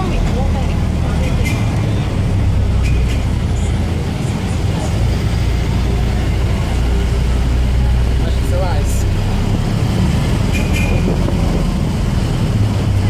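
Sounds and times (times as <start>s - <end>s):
vehicle rumble and road traffic: 0.0s - 13.0s.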